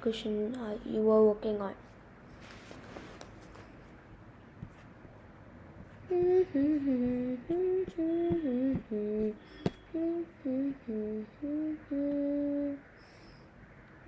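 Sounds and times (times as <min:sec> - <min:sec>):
person humming a tune: 0:06.0 - 0:13.0.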